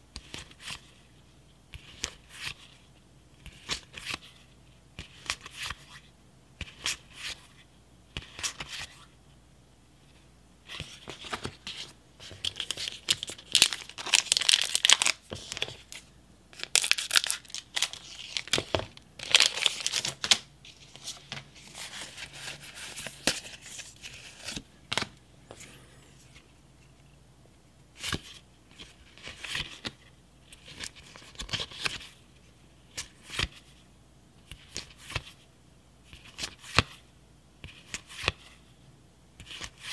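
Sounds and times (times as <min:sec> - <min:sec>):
foil wrapper tearing and crinkling: 0:12.6 - 0:15.2, 0:16.6 - 0:18.6, 0:19.2 - 0:20.4.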